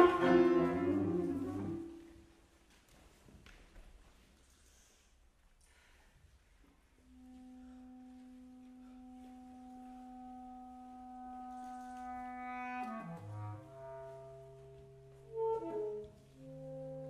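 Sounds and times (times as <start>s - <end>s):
bass clarinet: 0.0s - 2.2s, 7.0s - 17.0s
saxophone: 0.0s - 2.2s, 7.0s - 17.0s.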